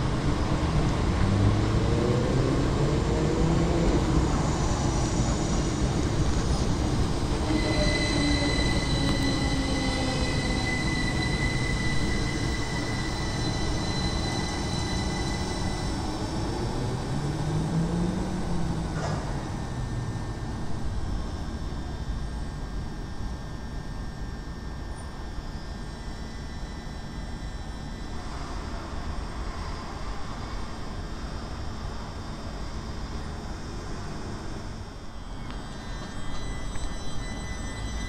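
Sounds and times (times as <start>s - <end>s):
train passing through station: 0.0s - 38.0s
high-pitched train squeal: 3.7s - 17.8s, 24.8s - 31.0s, 35.2s - 38.0s.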